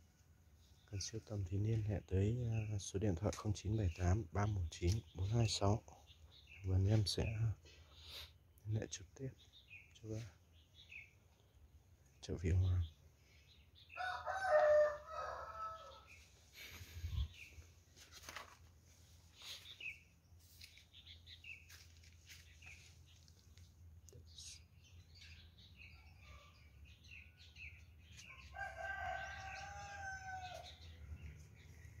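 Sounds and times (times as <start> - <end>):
rooster crowing: 14.0 - 16.2, 28.5 - 30.8
bird chirps: 19.3 - 32.0.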